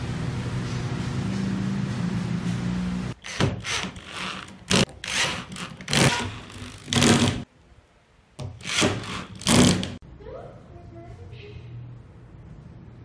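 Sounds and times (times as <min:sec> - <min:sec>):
mechanical hum: 0:00.0 - 0:13.0
cordless drill driving screws: 0:03.2 - 0:07.4, 0:08.6 - 0:10.0.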